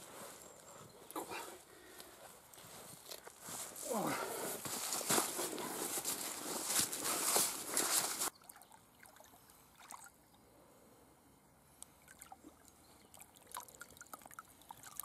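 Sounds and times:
small water splashes: 8.3s - 10.2s, 12.0s - 15.0s
water trickling and dripping: 8.3s - 10.2s, 12.0s - 15.0s.

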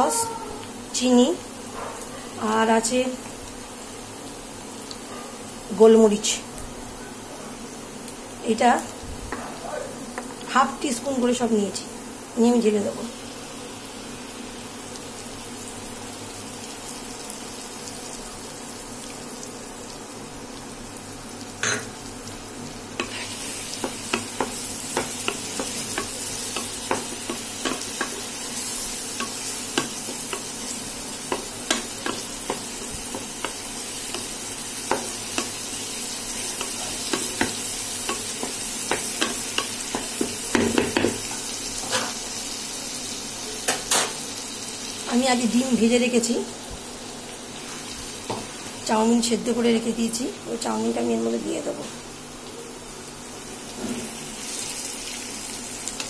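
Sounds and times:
vegetables sizzling in oil: 0.0s - 56.0s
spatula knocking and scraping pan: 23.0s - 28.4s, 29.2s - 35.7s, 36.4s - 42.2s.

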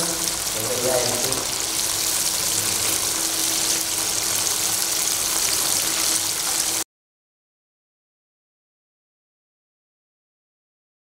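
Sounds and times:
dumplings sizzling in hot oil: 0.0s - 6.8s.

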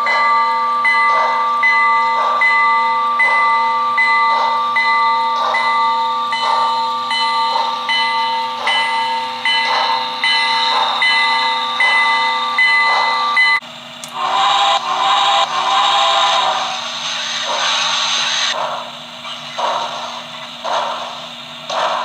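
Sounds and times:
locomotive bell ringing: 0.0s - 13.6s
soft rhythmic steam chuffs: 0.0s - 22.0s.

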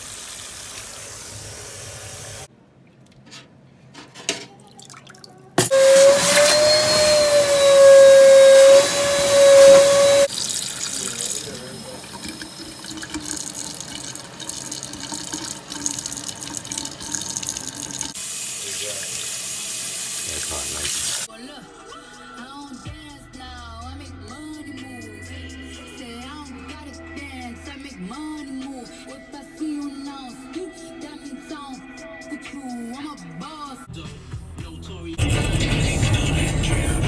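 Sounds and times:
loud steady whine: 5.6s - 10.3s
faucet running into steel sink: 10.3s - 21.3s.

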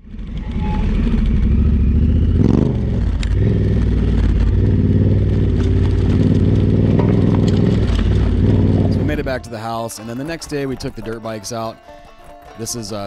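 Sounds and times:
motorcycle engine running: 0.0s - 10.1s.

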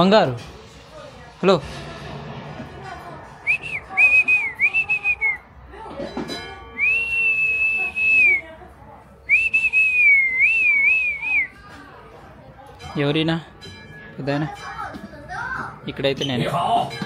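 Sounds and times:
shrill whistle: 3.4s - 5.4s, 6.8s - 8.4s, 9.3s - 11.6s.

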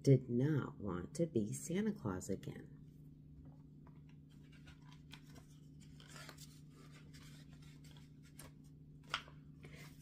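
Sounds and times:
low steady hum: 0.0s - 10.0s
paper page turning: 4.1s - 10.0s.

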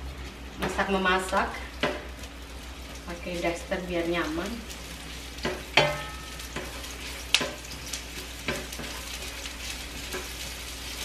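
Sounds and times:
onion sizzling in oil: 0.0s - 11.0s
spatula knocking and scraping pan: 5.4s - 10.5s.

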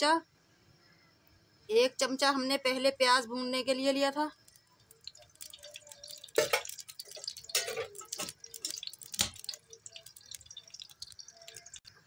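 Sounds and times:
oil popping in frying pan: 4.3s - 12.0s.

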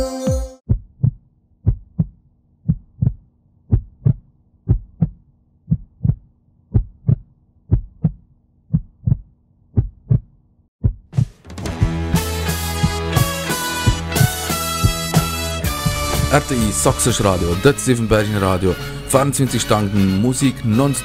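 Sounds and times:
heartbeat thumps: 0.7s - 12.0s, 12.8s - 16.9s.

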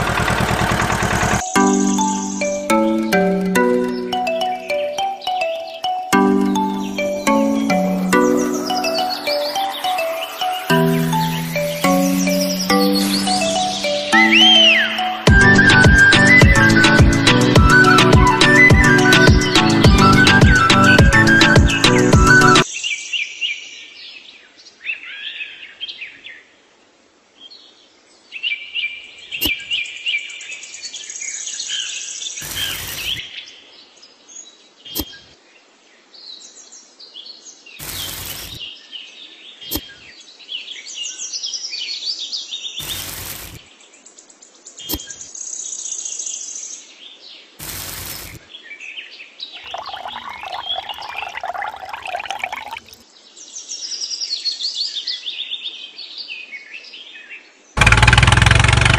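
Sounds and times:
dense rattling: 0.0s - 1.4s
loud bursts of noise: 0.0s - 1.4s
birds chirping and twittering: 0.0s - 26.4s, 27.4s - 35.3s, 48.1s - 57.7s.

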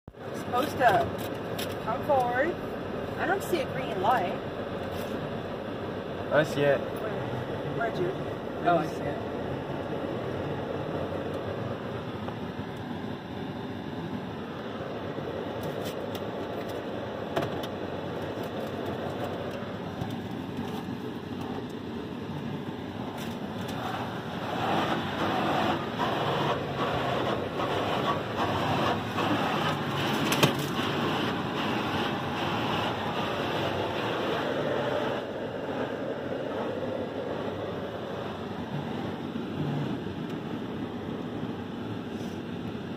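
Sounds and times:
water spray on car: 23.0s - 37.3s
cloth brushes slapping car: 23.1s - 35.3s.

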